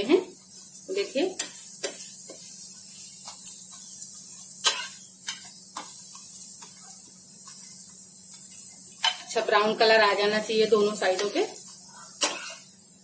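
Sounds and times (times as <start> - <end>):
faint sizzle: 0.0 - 13.0
metal spatula scraping a pan: 1.3 - 7.7, 9.0 - 9.4, 10.7 - 12.8.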